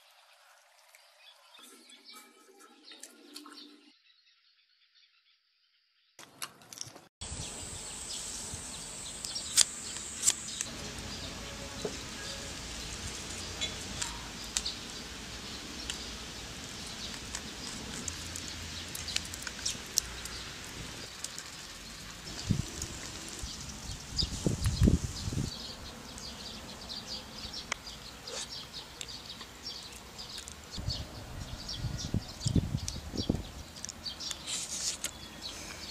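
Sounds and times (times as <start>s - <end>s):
steady hiss: 7.2s - 25.6s.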